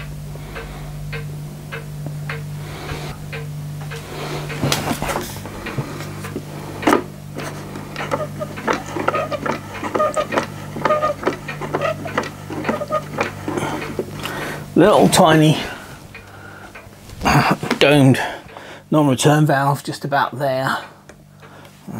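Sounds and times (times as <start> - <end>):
steady low hum: 0.0 - 21.9
pump model clicking: 5.6 - 15.4
short squeaks: 8.0 - 14.0.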